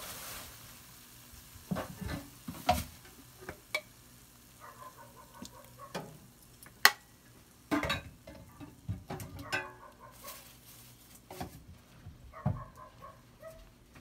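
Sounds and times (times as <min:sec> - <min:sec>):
light sizzling: 0:00.0 - 0:12.0
utensil scraping and knocking wok: 0:01.6 - 0:03.9, 0:07.7 - 0:11.7.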